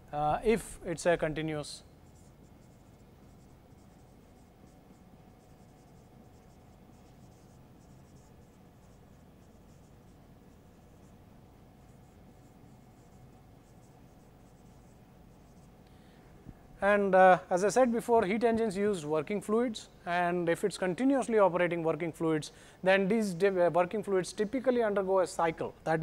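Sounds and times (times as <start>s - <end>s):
marker writing on whiteboard: 2.0s - 15.8s.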